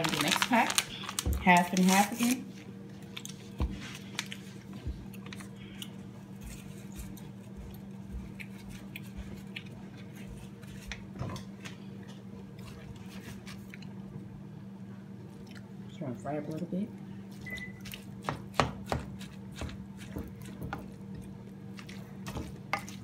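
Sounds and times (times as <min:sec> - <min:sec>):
meat crackling in a frying pan: 0:00.0 - 0:02.4.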